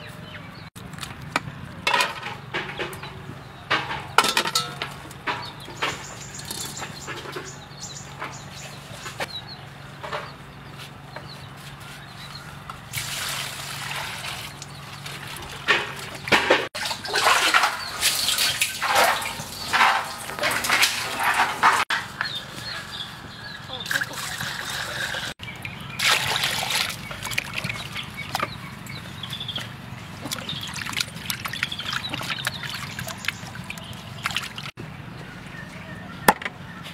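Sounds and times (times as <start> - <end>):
water splashing and sloshing: 12.8 - 22.4, 23.8 - 34.8.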